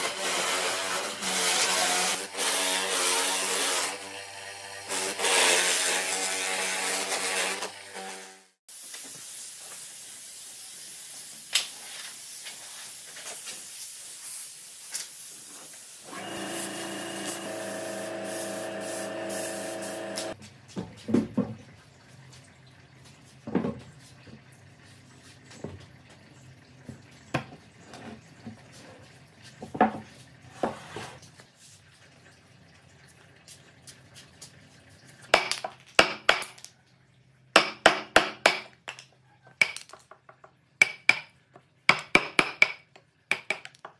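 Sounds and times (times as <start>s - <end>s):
air blow gun hissing: 15.8s - 20.4s
pitched mechanical hum: 16.1s - 20.4s.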